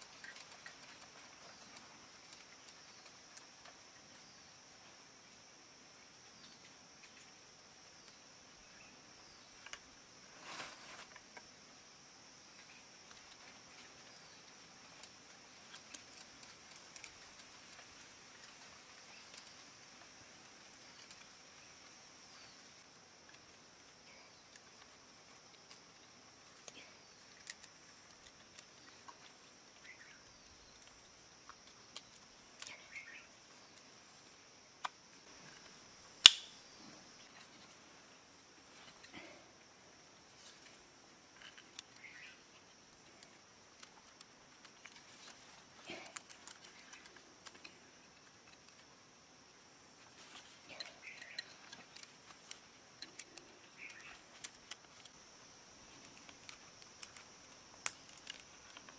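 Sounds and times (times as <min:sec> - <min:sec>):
small clicks and rustles: 0:00.0 - 0:04.9, 0:12.5 - 0:35.9, 0:40.0 - 0:49.1, 0:49.9 - 0:58.9
high insect drone: 0:00.0 - 0:58.9
sharp click: 0:36.2 - 0:36.6.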